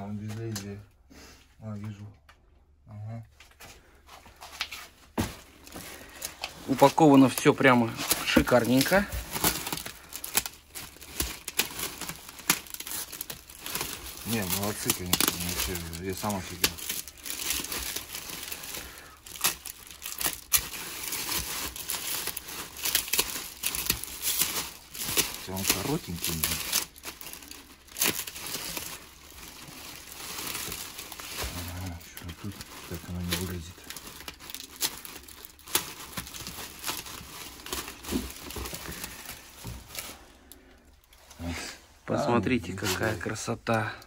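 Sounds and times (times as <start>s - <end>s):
wrapping crinkling and rustling: 3.4s - 44.0s
sharp rips of packaging: 6.2s - 39.5s.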